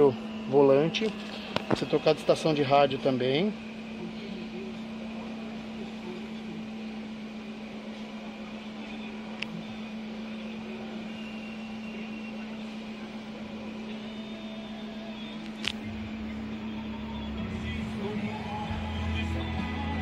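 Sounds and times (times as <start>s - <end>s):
car engine idling: 12.4s - 20.0s.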